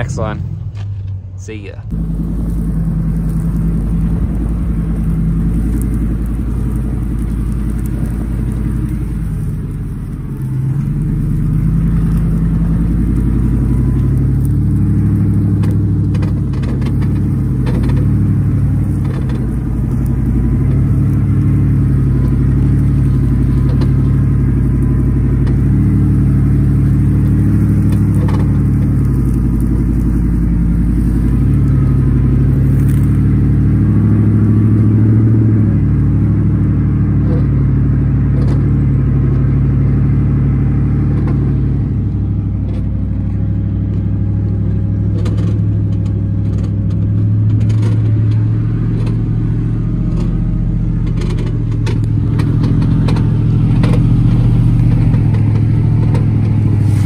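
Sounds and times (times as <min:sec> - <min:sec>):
pickup truck engine droning: 0:00.0 - 0:57.0.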